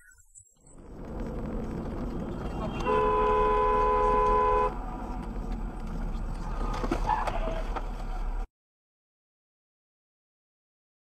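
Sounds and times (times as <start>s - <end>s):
moving car hum: 0.6s - 8.5s
two-tone car horn: 2.6s - 4.8s.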